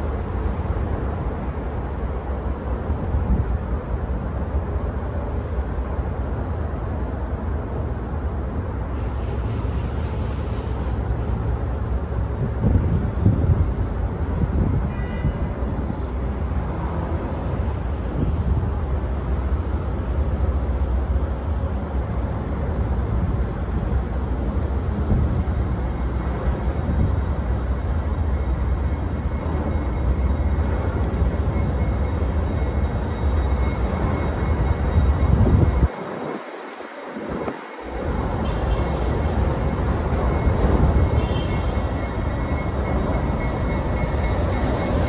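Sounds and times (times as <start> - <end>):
distant diesel freight train: 0.0 - 45.0
wind rumbling on microphone: 6.8 - 28.1, 33.2 - 45.0.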